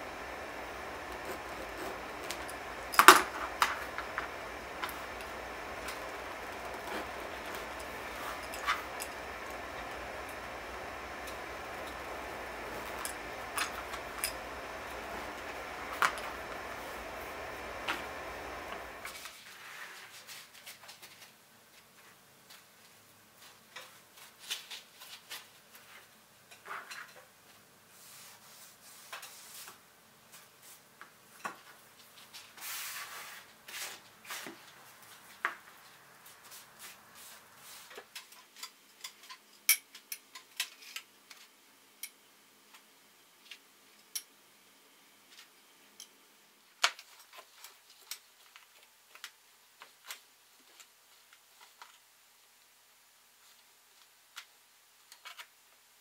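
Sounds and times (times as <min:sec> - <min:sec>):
steady hiss: 0:00.0 - 0:20.6, 0:31.9 - 0:39.7
tools clicking and tapping: 0:38.2 - 0:41.1.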